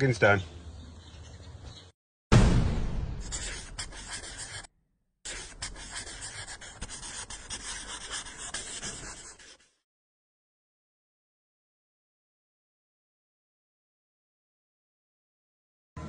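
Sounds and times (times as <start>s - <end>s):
sudden loud hit: 2.3s - 3.4s
pen scratching on paper: 3.2s - 4.7s, 5.3s - 9.8s.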